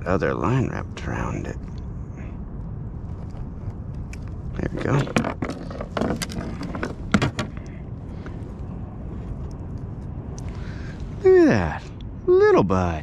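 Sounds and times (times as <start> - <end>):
low steady rumble: 0.0 - 13.0
clicks and knocks of handling: 4.0 - 7.8.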